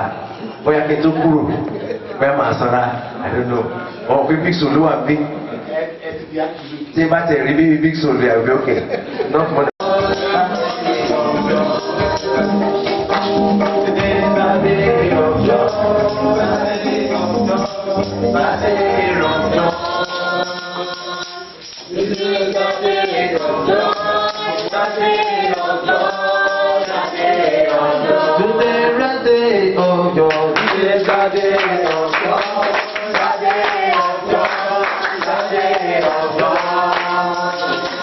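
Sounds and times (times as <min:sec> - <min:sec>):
choir singing gospel: 0:09.1 - 0:38.0
tambourine: 0:09.8 - 0:14.2, 0:15.5 - 0:27.5
band accompaniment: 0:09.8 - 0:21.2.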